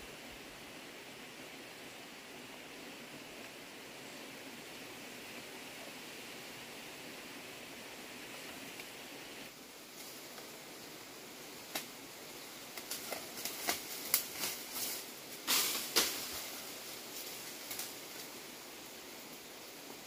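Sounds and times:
faint steady hiss: 0:00.0 - 0:20.0
branches snapping and rustling: 0:11.6 - 0:12.0, 0:12.7 - 0:18.4.

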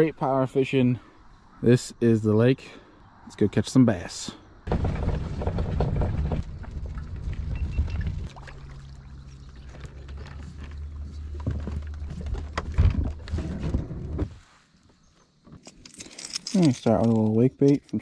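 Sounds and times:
low rumbling handling noise: 0:04.7 - 0:14.4
water sounds: 0:06.4 - 0:12.6.

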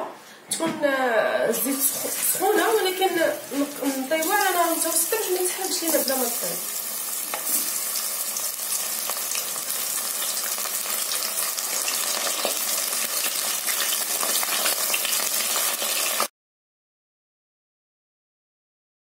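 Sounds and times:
food deep-frying in oil: 0:01.6 - 0:16.3.

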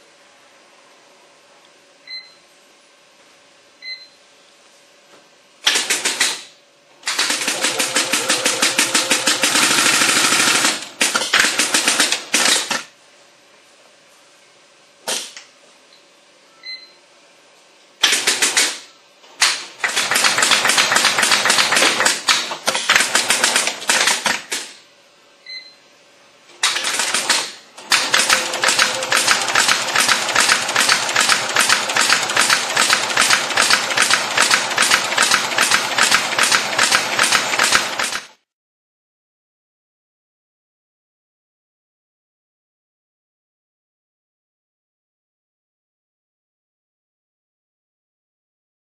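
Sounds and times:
short control panel beeps: 0:02.1 - 0:02.4, 0:03.8 - 0:04.2, 0:16.5 - 0:17.0, 0:25.4 - 0:25.8.

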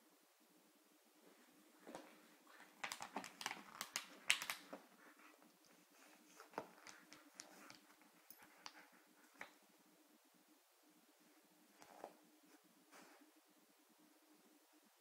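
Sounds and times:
puppy claws clicking and scuffling: 0:02.5 - 0:09.6.

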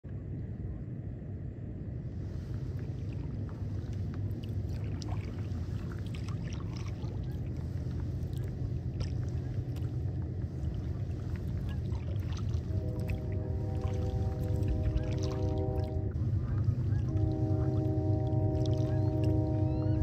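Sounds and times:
steady low rumble: 0:00.0 - 0:20.0
distant bird flock calls: 0:16.2 - 0:20.0.

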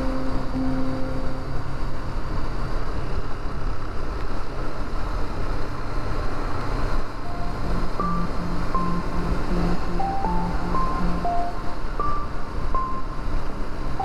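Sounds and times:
short musical notes: 0:00.0 - 0:02.2, 0:07.3 - 0:13.3.

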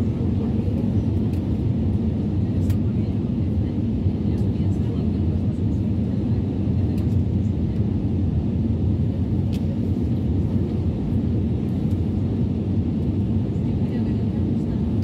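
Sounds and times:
jet engine cabin rumble: 0:00.0 - 0:15.0.

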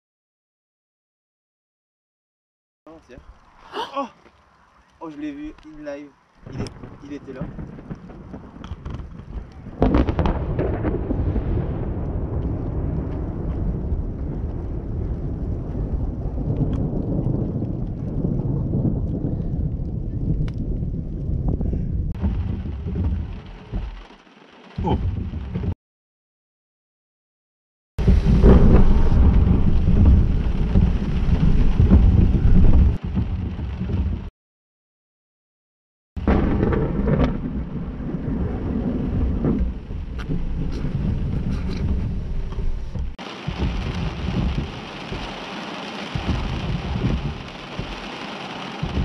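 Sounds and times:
rain pattering on windscreen: 0:02.9 - 0:25.8, 0:28.0 - 0:34.3, 0:36.2 - 0:49.0
thunder clap and rumble: 0:05.3 - 0:25.8, 0:28.0 - 0:34.3, 0:36.2 - 0:49.0.

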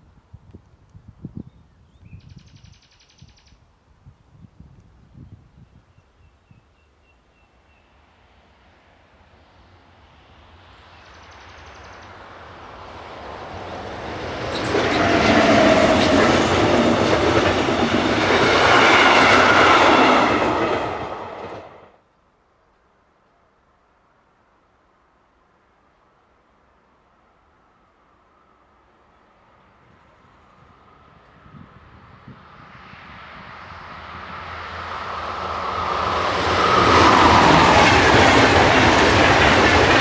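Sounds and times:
faint outdoor hiss: 0:00.0 - 0:14.4, 0:21.8 - 0:31.9
train passing at speed: 0:06.4 - 0:22.0, 0:24.1 - 0:40.0.

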